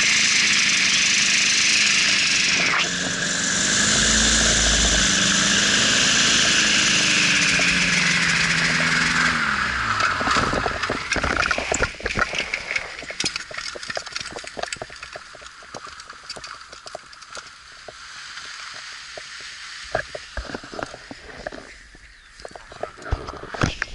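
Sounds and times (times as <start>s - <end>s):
engine and propeller winding down: 0.0s - 14.8s
wheels rolling over rough grass: 4.1s - 23.9s
knocks and rattles: 9.9s - 17.6s.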